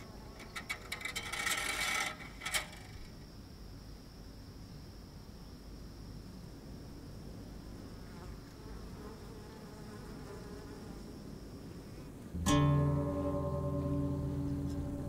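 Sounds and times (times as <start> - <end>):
faint hum: 0.0 - 15.0
loud low ringing note: 12.4 - 15.0.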